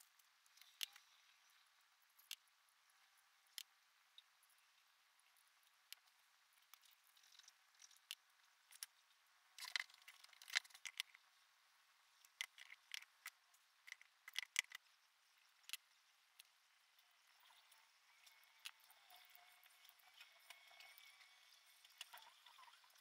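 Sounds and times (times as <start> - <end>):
clay sculpting clicks and scrapes: 0.2 - 1.6, 9.6 - 11.3, 12.2 - 14.9.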